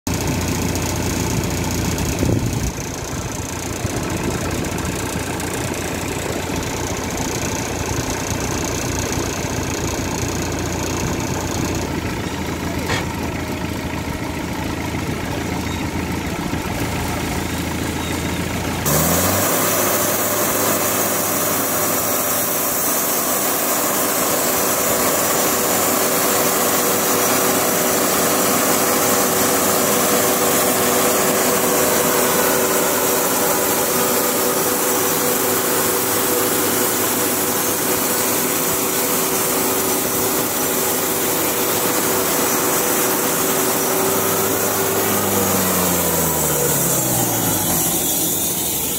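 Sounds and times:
sawmill engine revving: 0.1 - 48.9
saw head whine: 15.6 - 48.9
band saw cutting log: 16.7 - 48.9.

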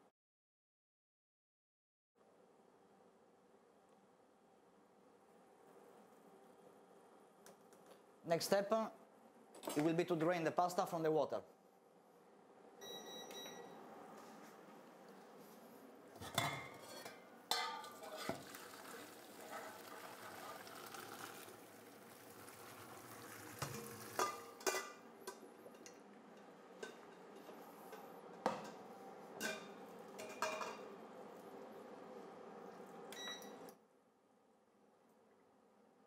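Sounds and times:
metal pot and colander clanking: 16.2 - 18.8, 23.5 - 25.9, 29.4 - 30.8.

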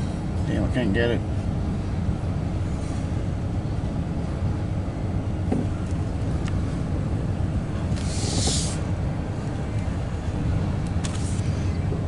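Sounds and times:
freight train rumbling over bridge: 0.0 - 12.0
brief hiss: 7.9 - 8.9.

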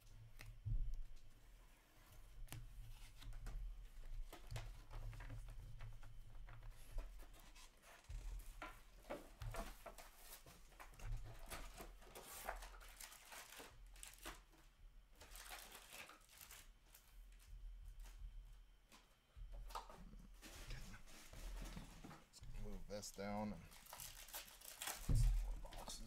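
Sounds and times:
wrappers and cards crinkling: 9.1 - 17.5, 22.6 - 26.0.

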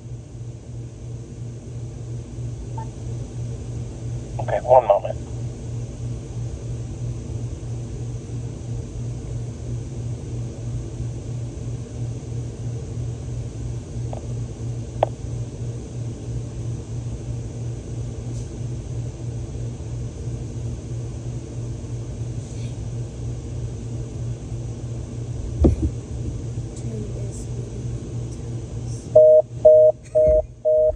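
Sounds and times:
low fluttering hum: 25.0 - 29.4.

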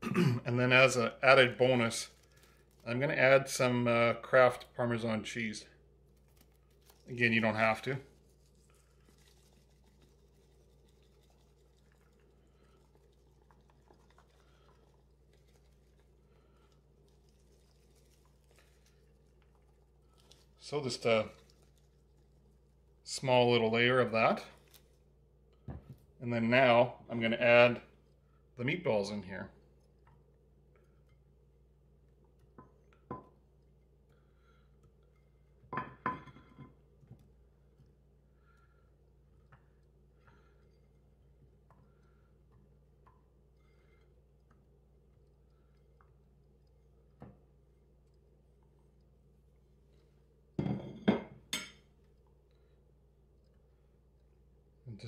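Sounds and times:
low steady hum: 0.0 - 55.0
cheese shaken from plastic shaker: 6.2 - 22.7.

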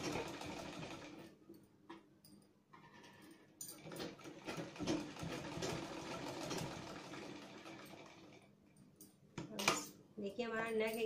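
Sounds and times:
sewing machine stitching: 0.0 - 1.2, 3.8 - 8.4.

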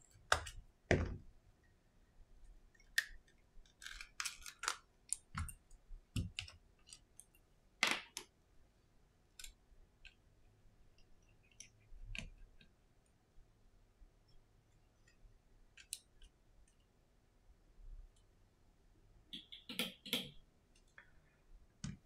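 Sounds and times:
small clicks and scrapes: 2.8 - 7.4.

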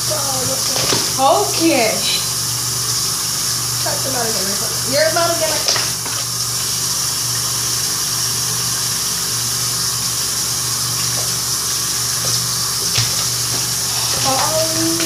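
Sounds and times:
low steady hum: 0.0 - 15.0
tap running into sink: 0.3 - 1.7, 5.1 - 6.8, 10.9 - 15.0.

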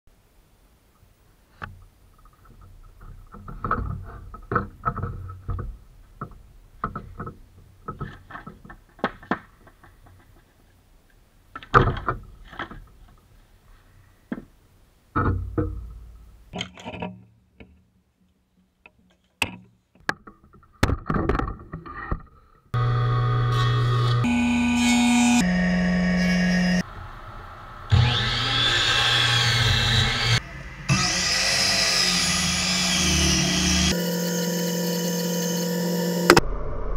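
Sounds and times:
boards and tools knocking: 2.2 - 10.5, 15.2 - 16.1.

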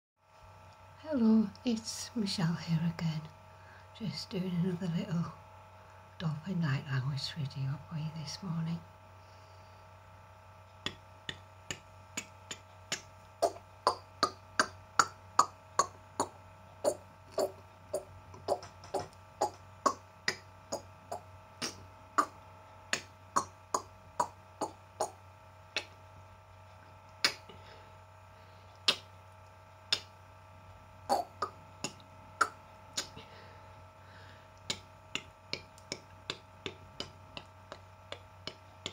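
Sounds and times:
woman making mouth clicks: 10.8 - 25.2, 25.8 - 26.0, 27.2 - 27.6, 28.8 - 29.1, 29.9 - 30.1, 31.1 - 33.2, 34.6 - 38.9.

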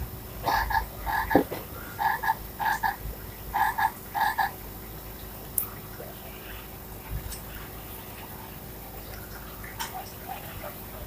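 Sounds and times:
recorded frog croaks from speaker: 0.0 - 4.6.

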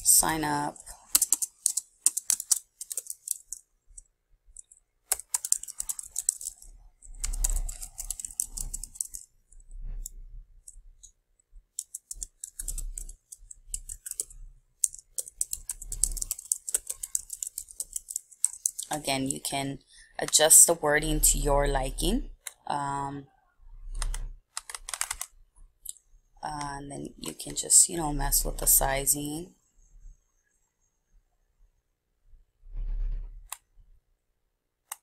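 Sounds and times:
computer keyboard typing: 0.0 - 11.1, 11.7 - 19.5, 23.9 - 25.3.

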